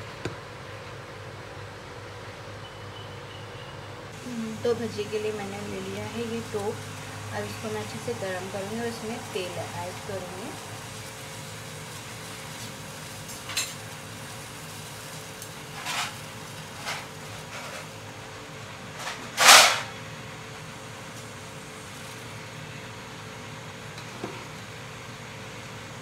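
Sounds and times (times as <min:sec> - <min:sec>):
steady low hum: 0:04.0 - 0:13.6.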